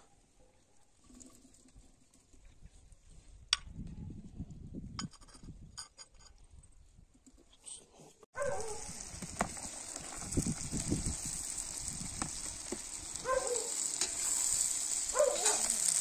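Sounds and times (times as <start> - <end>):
vegetables sizzling in hot oil: 8.5 - 16.0.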